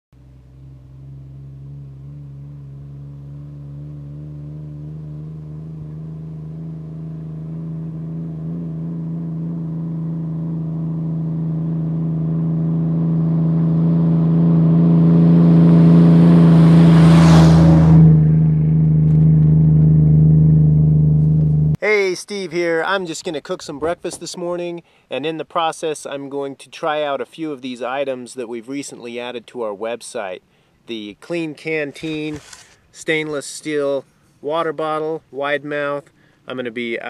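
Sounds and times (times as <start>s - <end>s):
vehicle engine running: 0.1s - 21.8s
loud rising whoosh: 1.0s - 21.8s.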